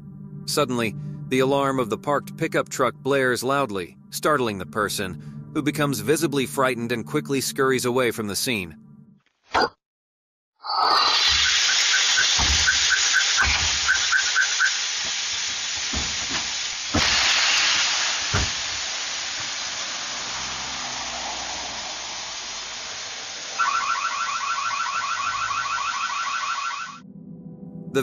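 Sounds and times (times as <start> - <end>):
car alarm chirping and warbling: 10.9 - 17.6, 18.2 - 27.0
loud steady hiss: 11.0 - 25.0.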